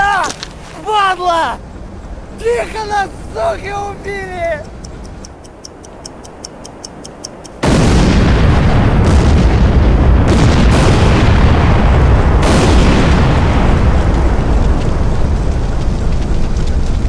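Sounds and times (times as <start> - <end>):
clockwork timer ticking: 4.6 - 7.6
huge explosion rumbling: 7.6 - 17.0.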